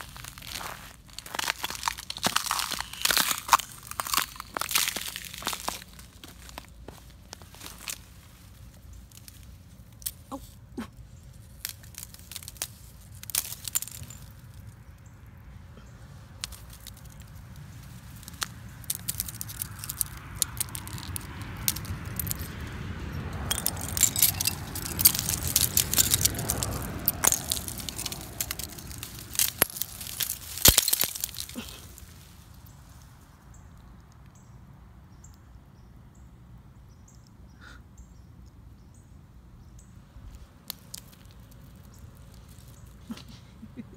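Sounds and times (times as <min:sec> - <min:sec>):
icicles and twigs snapping: 0:00.0 - 0:15.1, 0:16.1 - 0:33.0, 0:40.2 - 0:43.4.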